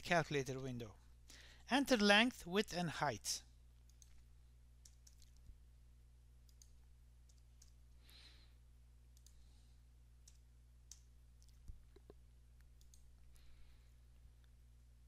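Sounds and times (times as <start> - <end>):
steady low hum: 0.0 - 15.0
computer keyboard and mouse clicks: 3.9 - 4.2, 4.8 - 5.5, 6.5 - 7.8, 10.2 - 13.2.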